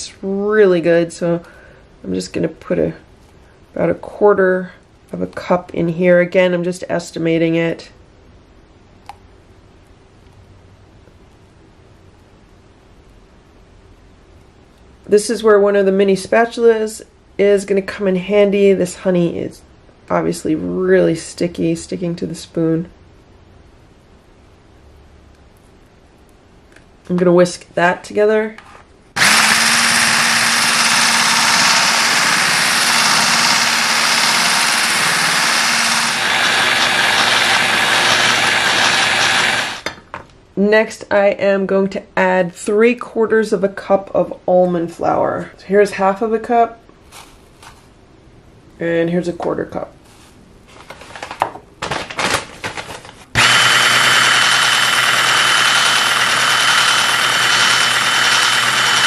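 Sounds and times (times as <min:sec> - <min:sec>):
immersion blender whisking: 0:29.2 - 0:39.9, 0:53.4 - 0:59.0.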